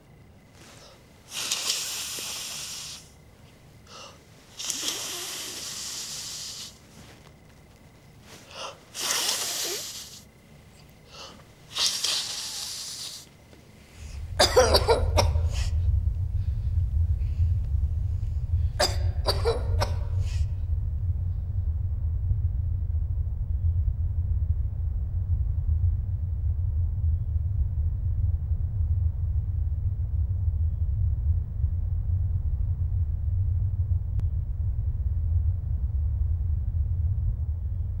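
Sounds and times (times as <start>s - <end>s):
low rumble: 13.8s - 38.0s.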